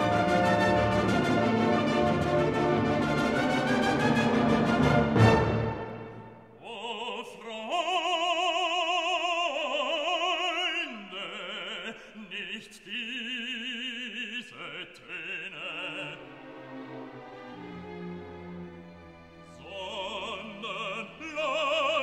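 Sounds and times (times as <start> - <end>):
orchestra playing: 0.0 - 6.6, 16.0 - 21.3
operatic singing: 0.0 - 22.0.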